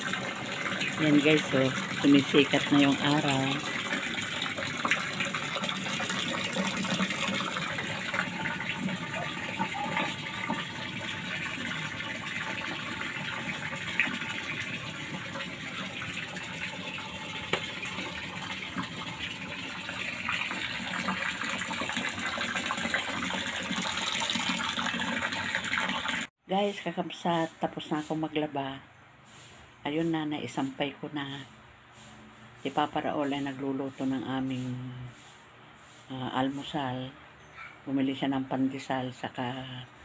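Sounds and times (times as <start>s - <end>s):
running water pouring: 0.0s - 26.3s.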